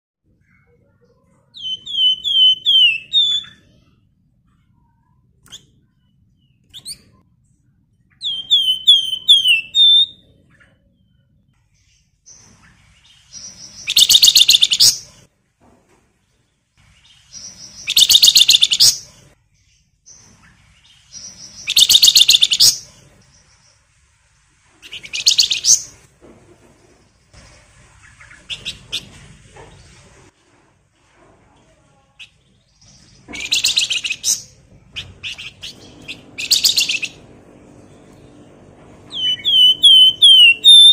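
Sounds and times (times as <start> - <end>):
songbird down-slurred whistles: 39.1 - 40.9.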